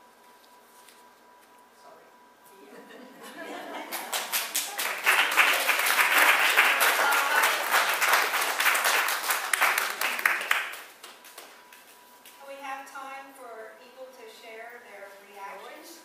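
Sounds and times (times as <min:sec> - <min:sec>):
congregation applauding: 0:03.8 - 0:11.6.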